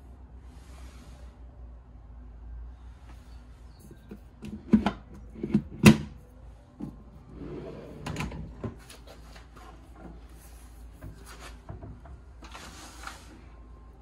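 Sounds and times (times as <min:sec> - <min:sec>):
soft rubbing and sliding: 0:00.4 - 0:01.4, 0:08.8 - 0:11.7, 0:12.4 - 0:13.6.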